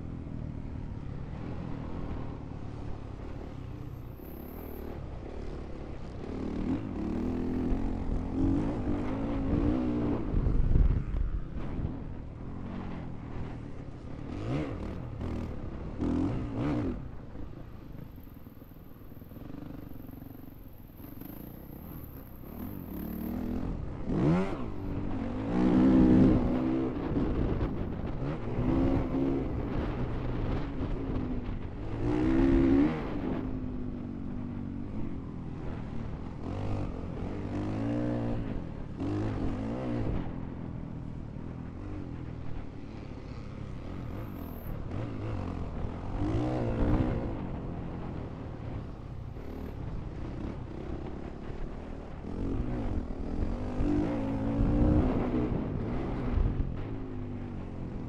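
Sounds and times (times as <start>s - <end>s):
motorcycle engine revving: 12.7s - 17.6s, 19.3s - 58.0s.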